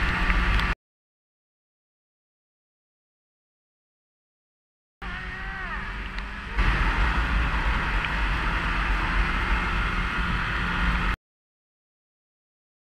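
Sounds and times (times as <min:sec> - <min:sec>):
snowmobile engine running: 0:05.0 - 0:11.2.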